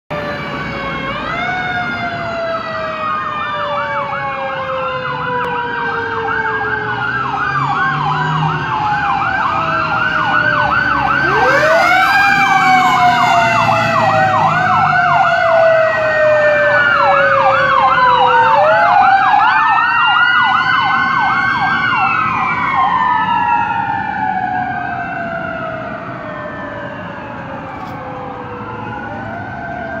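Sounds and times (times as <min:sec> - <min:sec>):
deep siren winding up: 0:00.1 - 0:30.0
sirens wailing: 0:00.1 - 0:30.0
sirens yelping: 0:00.1 - 0:30.0.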